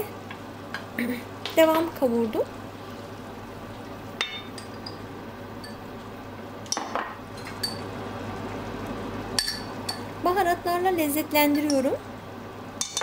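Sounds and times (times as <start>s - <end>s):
sauce sizzling and bubbling: 2.5s - 10.2s.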